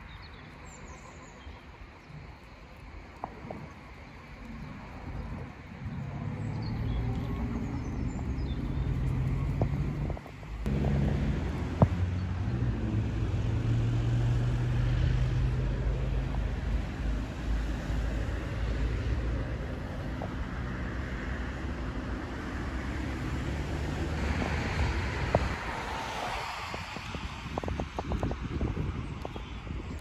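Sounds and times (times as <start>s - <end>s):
motor vehicle engine humming: 2.9s - 25.6s.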